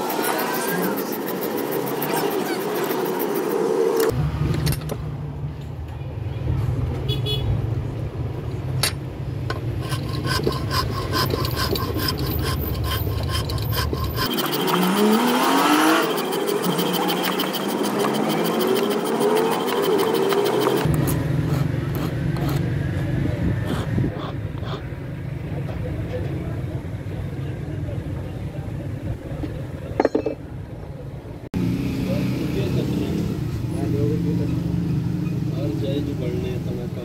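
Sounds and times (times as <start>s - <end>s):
file rasping on knife blade: 0.0s - 3.7s, 9.8s - 22.6s, 23.6s - 24.8s
traffic passing: 0.0s - 37.0s.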